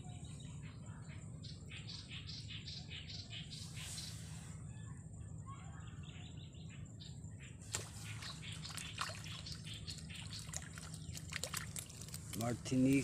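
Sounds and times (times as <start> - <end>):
small bird chirping: 0.0 - 13.0
small water splashes: 7.6 - 13.0.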